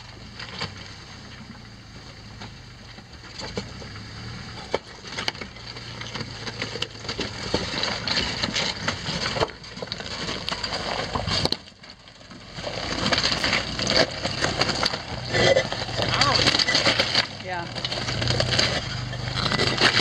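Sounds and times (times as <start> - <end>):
engine running low: 0.0 - 20.0
gravel crunching under tyres: 0.0 - 20.0
stones cracking and clicking: 4.7 - 20.0.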